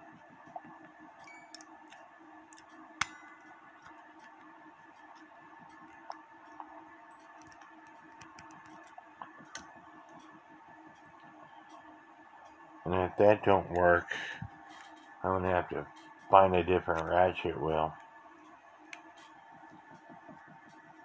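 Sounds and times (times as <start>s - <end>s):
faint steady hum: 0.0s - 21.0s
small metallic clicks and taps: 6.1s - 10.3s.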